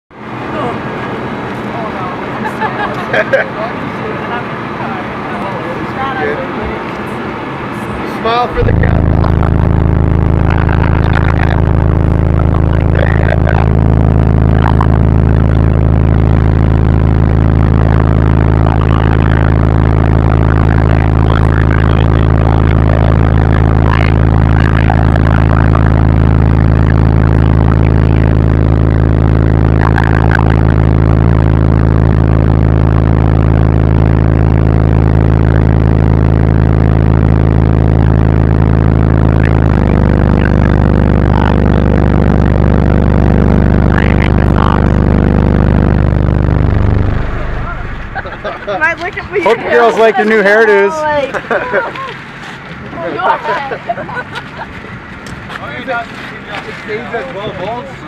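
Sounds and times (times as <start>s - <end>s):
loud low bass tone: 8.2s - 51.0s.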